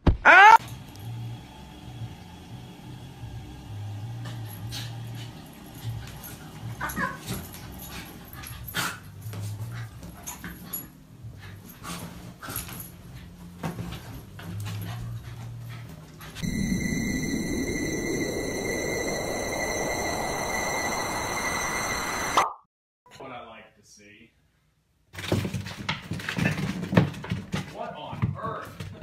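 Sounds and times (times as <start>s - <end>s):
small dog whimpering and yipping: 6.8s - 7.4s
loud sound: 16.4s - 22.6s.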